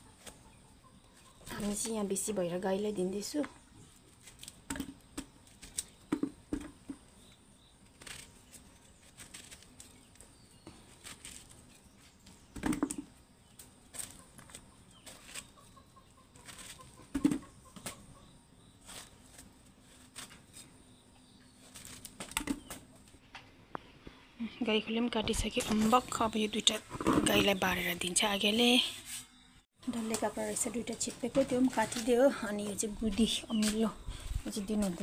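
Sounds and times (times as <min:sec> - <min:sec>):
chickens clucking: 0:13.9 - 0:18.4.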